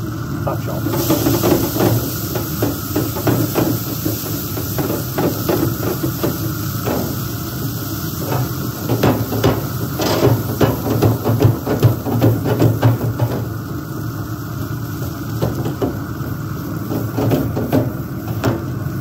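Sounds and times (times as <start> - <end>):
water hissing on hot metal: 0.0 - 19.0.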